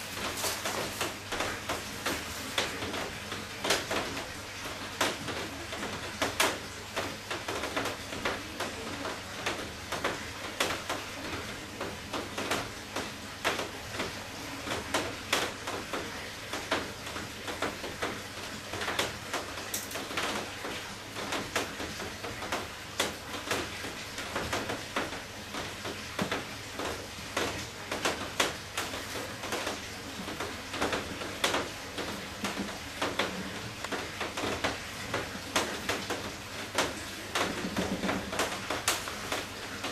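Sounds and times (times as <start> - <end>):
piping bag crinkling: 0.0 - 3.3.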